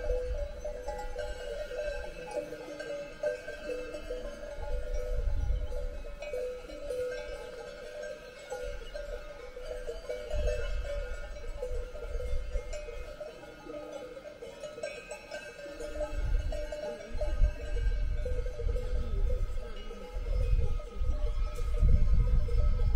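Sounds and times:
wind buffeting microphone: 0:00.0 - 0:02.2, 0:03.6 - 0:07.4, 0:08.6 - 0:13.1, 0:15.9 - 0:22.9
cowbells clanking: 0:00.0 - 0:22.9.

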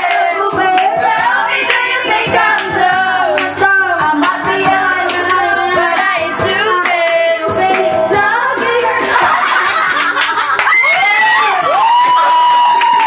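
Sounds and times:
people cheering and clapping: 0:00.0 - 0:03.6, 0:09.0 - 0:13.0
woman singing into a microphone: 0:00.0 - 0:09.0
backing music: 0:00.0 - 0:13.0.

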